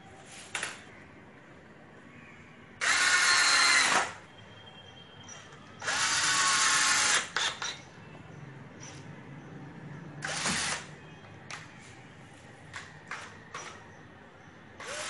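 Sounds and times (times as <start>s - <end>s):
electric drill running: 2.8s - 4.2s, 5.8s - 7.8s, 10.2s - 10.9s, 14.8s - 15.0s.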